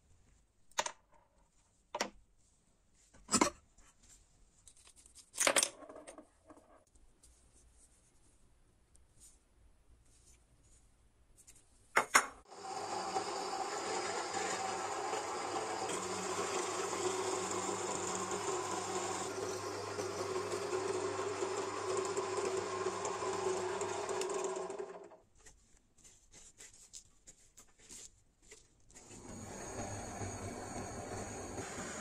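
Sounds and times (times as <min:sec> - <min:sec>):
drill press drilling metal: 0:12.5 - 0:25.1, 0:29.2 - 0:32.0
gas blowtorch hissing: 0:29.3 - 0:32.0.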